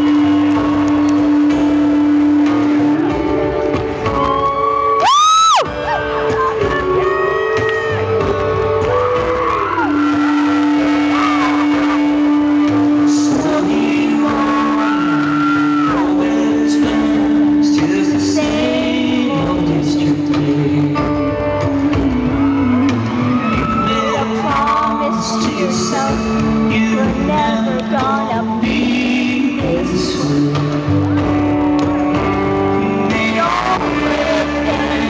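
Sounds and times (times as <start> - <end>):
electric guitars: 0.0 - 35.0
person singing: 0.0 - 35.0
loud rising whoop: 4.1 - 5.7, 7.3 - 12.4.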